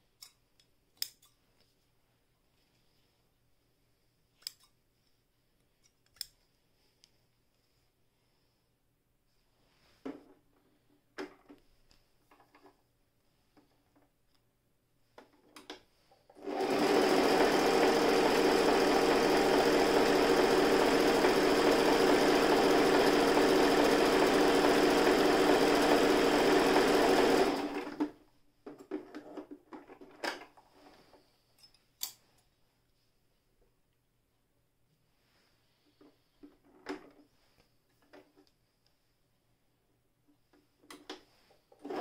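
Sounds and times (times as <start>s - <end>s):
sewing machine stitching: 16.4s - 28.2s, 41.7s - 42.0s.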